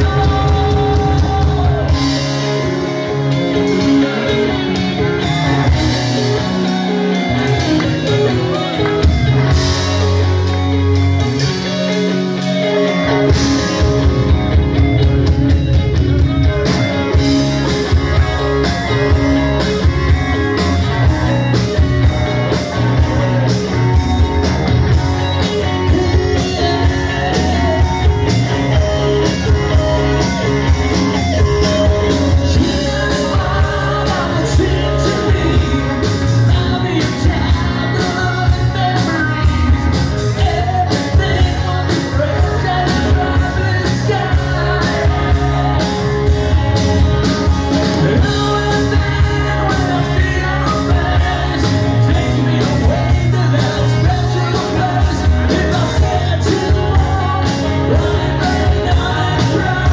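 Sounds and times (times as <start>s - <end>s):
rock band playing: 0.0s - 59.9s.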